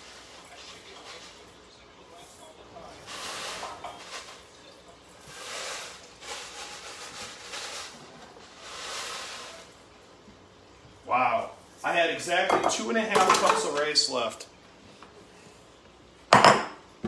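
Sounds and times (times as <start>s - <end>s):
dry rice pouring: 2.8s - 4.4s, 5.3s - 9.8s.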